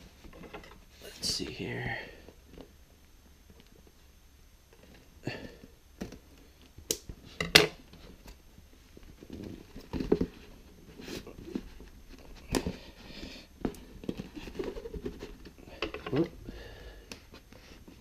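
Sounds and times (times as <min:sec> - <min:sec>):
cardboard flaps rustling and scraping: 0:07.2 - 0:16.4.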